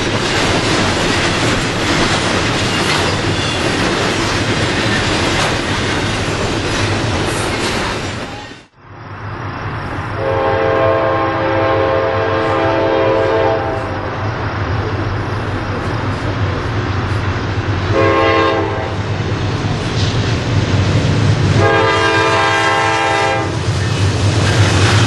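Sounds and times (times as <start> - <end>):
train rumbling: 0.0 - 25.0
locomotive air horn blasts: 10.2 - 14.1, 17.9 - 19.0, 21.6 - 23.6.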